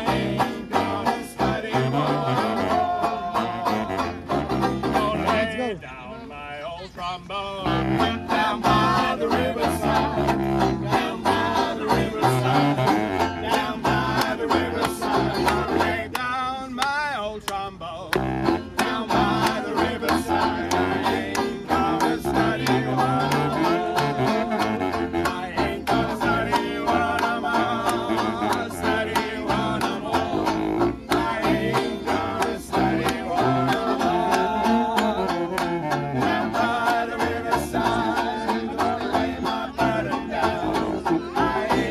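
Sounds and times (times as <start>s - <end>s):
trombone: 0.0s - 5.6s, 7.6s - 16.0s, 18.1s - 37.0s
banjo strumming: 0.0s - 5.7s, 7.7s - 16.2s, 18.1s - 41.9s
saxophones: 0.0s - 5.7s, 7.6s - 14.1s, 18.1s - 37.0s
clarinet: 0.0s - 5.8s, 7.6s - 16.0s, 18.1s - 41.9s.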